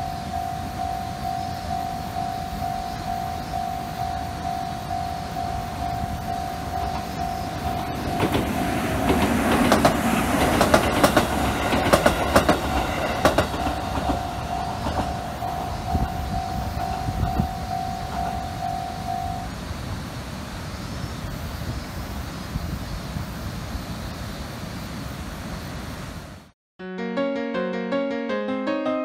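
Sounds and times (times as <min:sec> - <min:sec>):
level crossing bell ringing: 0:00.0 - 0:08.7, 0:13.6 - 0:19.5
train wheels clacking on rail joints: 0:06.4 - 0:18.7.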